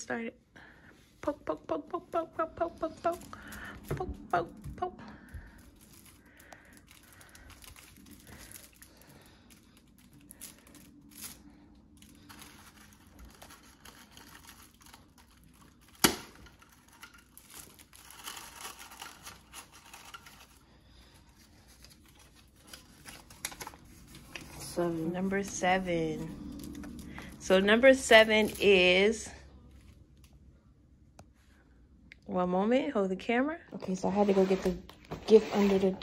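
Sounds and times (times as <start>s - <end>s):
tissue paper crinkling and tearing: 2.8s - 29.2s.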